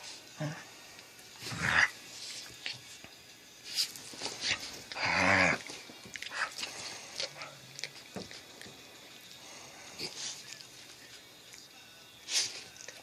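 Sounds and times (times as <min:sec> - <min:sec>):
dog growling: 0:01.4 - 0:02.0, 0:04.9 - 0:08.0.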